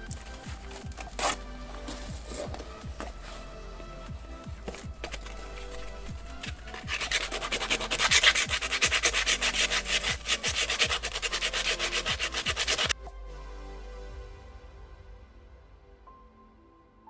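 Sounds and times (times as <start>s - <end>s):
sandpaper scraping plastic: 0.1s - 1.4s, 4.7s - 13.0s.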